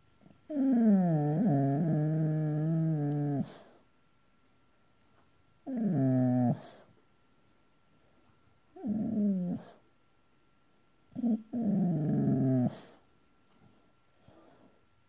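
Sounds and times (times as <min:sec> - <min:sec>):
dog vocalizing in sleep: 0:00.4 - 0:03.8, 0:05.7 - 0:06.9, 0:08.8 - 0:09.8, 0:11.1 - 0:13.0.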